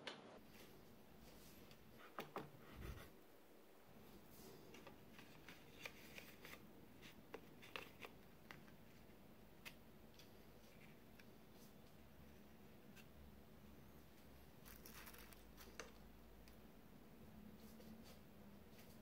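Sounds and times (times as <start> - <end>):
aluminium foil pans crinkling: 14.6 - 15.9.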